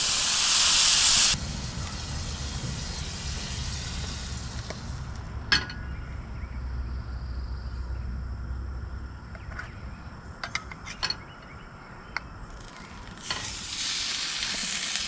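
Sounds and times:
butter sizzling in skillet: 0:00.0 - 0:05.2, 0:13.2 - 0:15.0
low rumble: 0:01.4 - 0:09.2.

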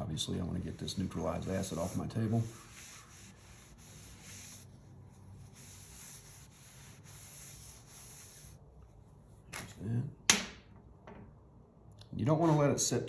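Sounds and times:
towel wiping a wet tabletop: 0:00.3 - 0:08.6.

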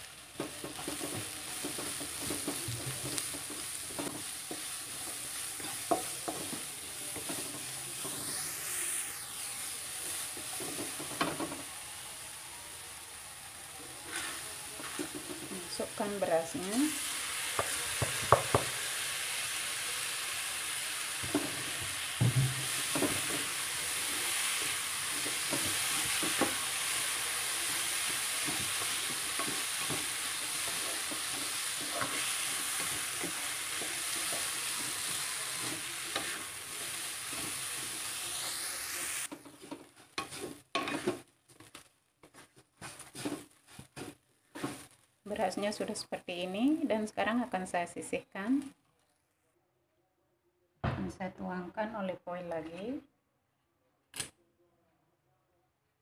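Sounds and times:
rice sizzling in oil: 0:00.0 - 0:47.2
spatula scraping a pan: 0:00.7 - 0:08.5, 0:14.0 - 0:15.6, 0:22.6 - 0:41.2, 0:42.2 - 0:44.9.

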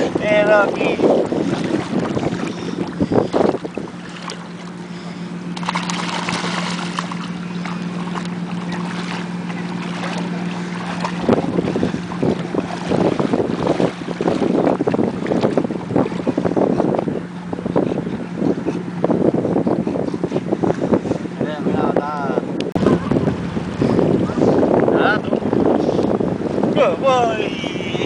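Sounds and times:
water splashing: 0:00.0 - 0:21.2
motor drone: 0:00.0 - 0:21.5
wind buffeting microphone: 0:00.0 - 0:28.0.

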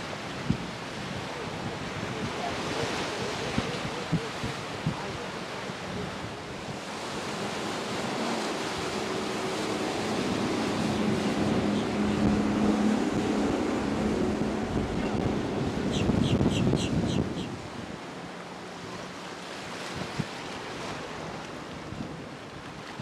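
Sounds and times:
wind buffeting microphone: 0:00.0 - 0:18.0
boat engine droning: 0:00.0 - 0:23.0.

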